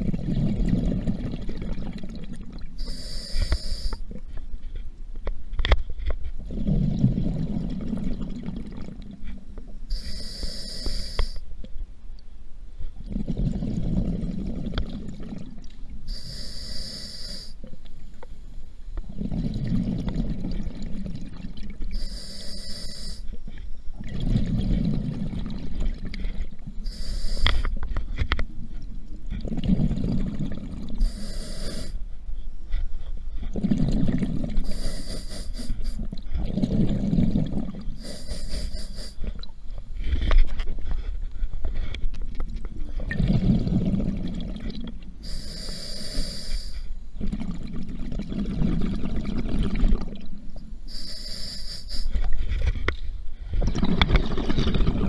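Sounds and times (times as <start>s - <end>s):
exhale bubbling underwater: 0.0s - 4.0s, 6.4s - 11.4s, 13.0s - 17.8s, 19.0s - 23.3s, 23.9s - 27.8s, 29.2s - 32.0s, 33.4s - 39.6s, 42.9s - 55.0s
regulator inhale hiss: 2.8s - 4.2s, 9.9s - 11.5s, 16.1s - 17.7s, 21.9s - 23.6s, 26.8s - 28.0s, 31.0s - 32.8s, 34.6s - 36.1s, 38.0s - 39.4s, 45.2s - 47.0s, 50.9s - 52.6s.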